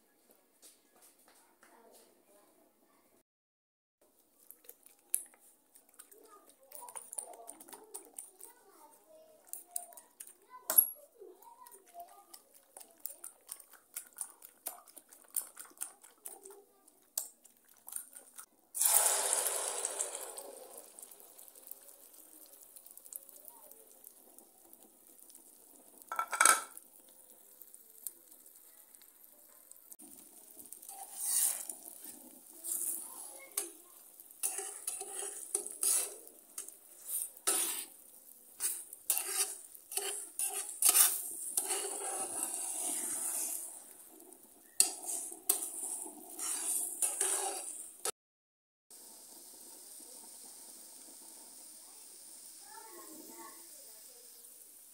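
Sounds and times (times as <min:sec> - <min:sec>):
egg sizzling: 0:04.2 - 0:48.2, 0:48.9 - 0:54.9
fork scraping a metal pan: 0:30.8 - 0:43.9, 0:44.8 - 0:48.1.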